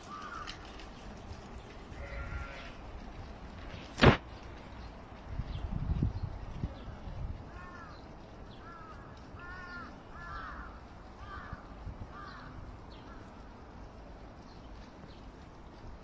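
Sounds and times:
crow cawing: 0:00.0 - 0:00.6, 0:08.6 - 0:13.3
small birds chirping: 0:04.2 - 0:16.0.

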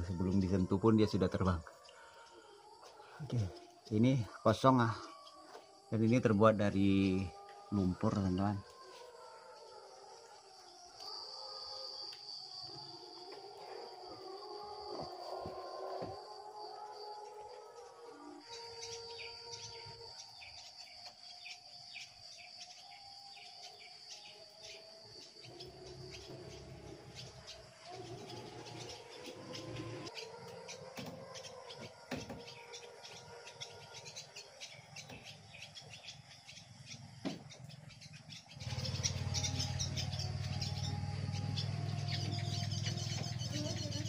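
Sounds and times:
swallows twittering: 0:17.7 - 0:44.0.

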